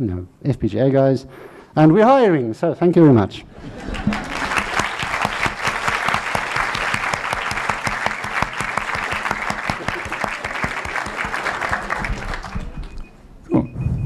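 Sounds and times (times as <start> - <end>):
audience applauding: 3.7 - 13.1.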